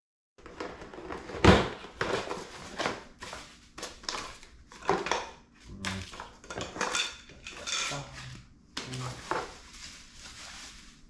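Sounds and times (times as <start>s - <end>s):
paper leaflet rustling: 8.9s - 11.0s.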